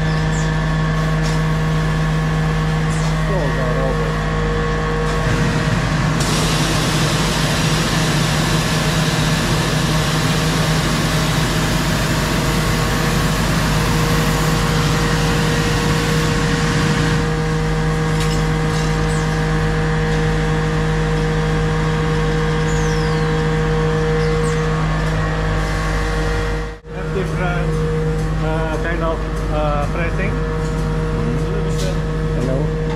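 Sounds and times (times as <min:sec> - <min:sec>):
machine low hum: 0:00.0 - 0:32.9
machine hiss: 0:05.1 - 0:17.2.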